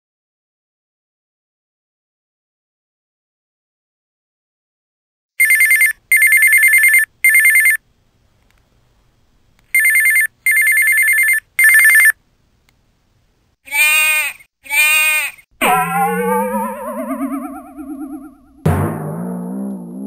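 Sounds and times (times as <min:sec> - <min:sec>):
sheep bleating: 0:13.7 - 0:15.8.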